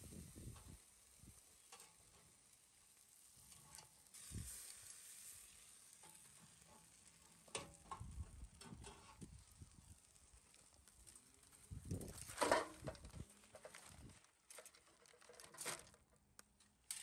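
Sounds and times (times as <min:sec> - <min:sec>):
chicken sizzling on a grill: 0:00.0 - 0:13.5.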